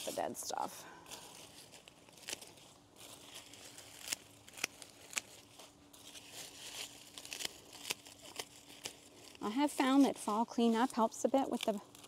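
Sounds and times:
dry leaves rustling and tearing: 1.0 - 12.0.

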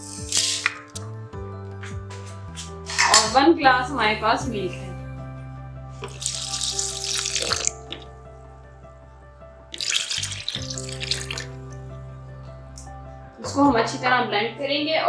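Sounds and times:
milk pouring and splashing: 0.0 - 1.0, 6.0 - 8.2, 9.7 - 11.7
background music: 0.0 - 15.0.

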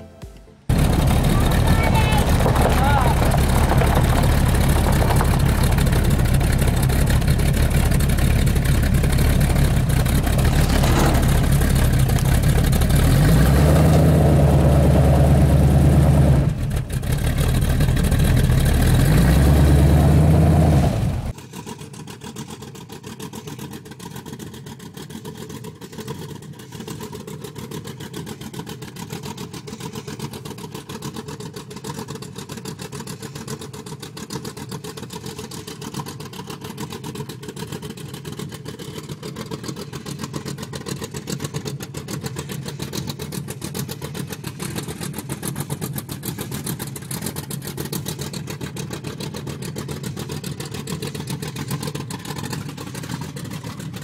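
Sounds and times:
engine idling: 0.5 - 54.0
engine revving: 0.7 - 22.9.

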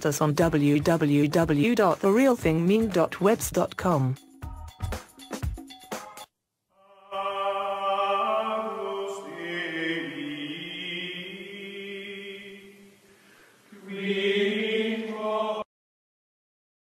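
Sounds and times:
choral chant: 6.8 - 13.0, 13.7 - 15.7.

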